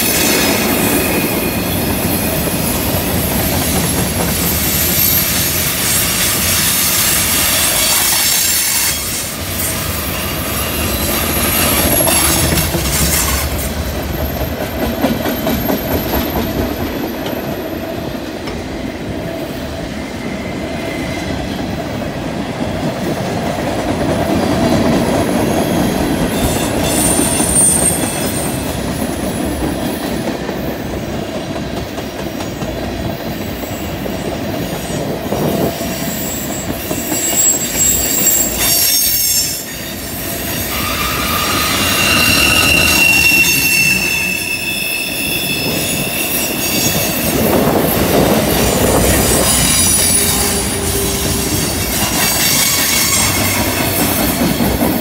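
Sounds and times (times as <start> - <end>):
train wheels rumbling on rails: 0.0 - 55.0
wheel flange squeals: 35.6 - 54.2.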